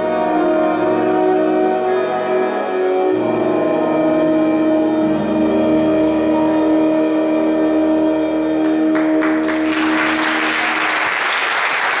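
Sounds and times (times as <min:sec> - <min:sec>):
audience applause: 0:08.6 - 0:12.0.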